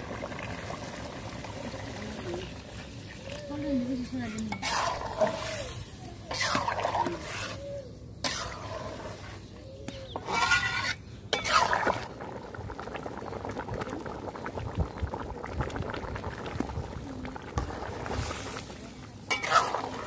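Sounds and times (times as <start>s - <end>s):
curry bubbling in pan: 0.0s - 7.6s, 8.2s - 20.0s
metal spatula scraping pan: 4.3s - 9.4s, 10.1s - 12.0s, 19.3s - 20.0s.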